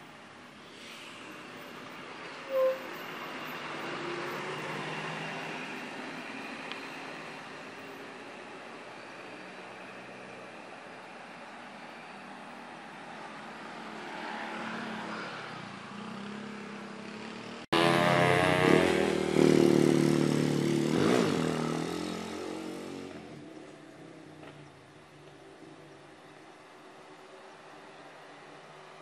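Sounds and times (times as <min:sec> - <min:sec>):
bus engine: 0:00.0 - 0:29.0
motorcycle engine: 0:16.0 - 0:23.4
loud pitched engine drone: 0:17.8 - 0:19.3.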